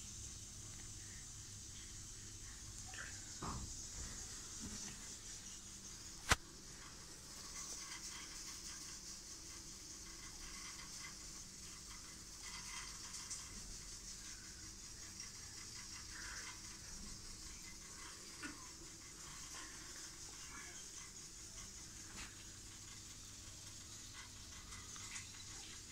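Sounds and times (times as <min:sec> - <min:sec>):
faint room hiss: 0:00.0 - 0:25.9
sharp click: 0:06.2 - 0:06.4.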